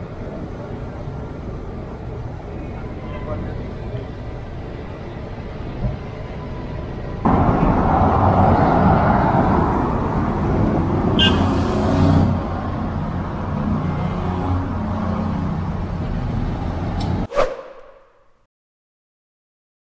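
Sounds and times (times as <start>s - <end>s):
cars driving past: 7.2s - 18.2s.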